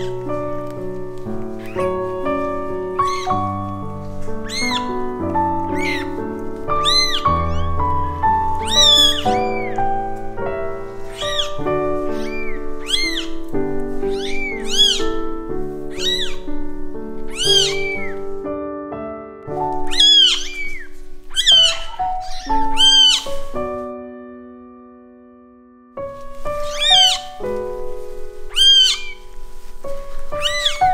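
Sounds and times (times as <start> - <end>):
background music: 0.0 - 30.9
kittens mewing: 6.8 - 10.0, 11.0 - 13.5, 14.1 - 15.2, 15.9 - 16.4, 17.3 - 18.2, 19.8 - 23.4, 26.6 - 27.4, 28.5 - 29.3.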